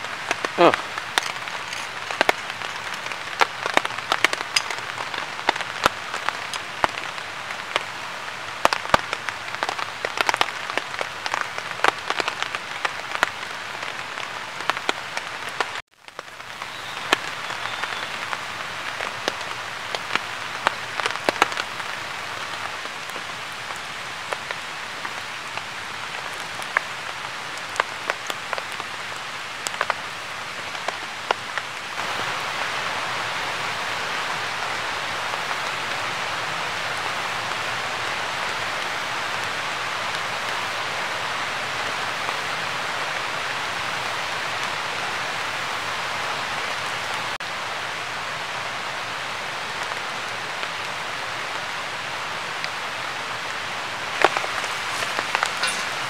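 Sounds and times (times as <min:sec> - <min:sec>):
campfire crackling and popping: 0:00.0 - 0:13.6, 0:14.6 - 0:21.9, 0:54.0 - 0:56.0
steady fire hiss: 0:53.8 - 0:56.0.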